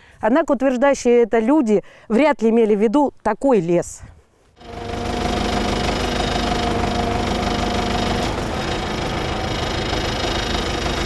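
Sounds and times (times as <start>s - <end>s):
diesel engine knocking: 4.6s - 11.0s
steady whine: 4.6s - 11.0s.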